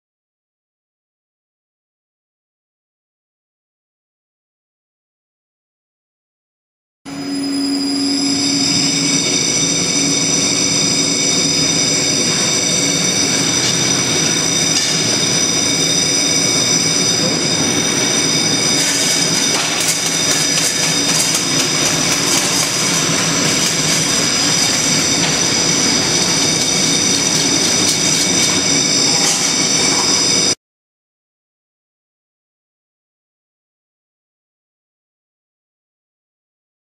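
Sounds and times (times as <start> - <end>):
high-pitched machine whine: 7.1 - 30.6.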